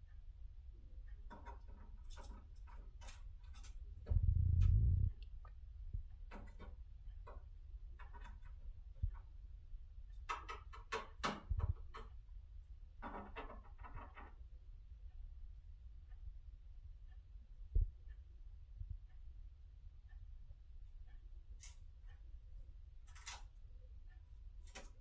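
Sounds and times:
low thud: 4.1 - 5.1
bird beak tapping on plastic: 10.2 - 12.1, 13.0 - 14.3.

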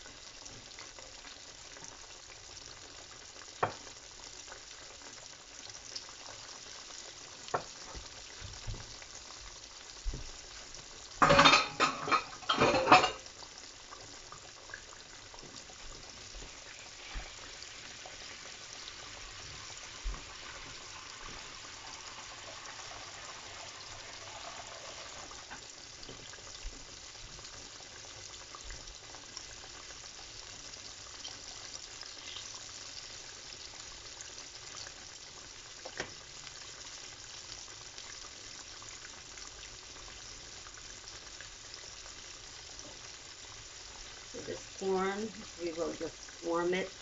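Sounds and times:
chicken frying in oil: 0.0 - 47.0.

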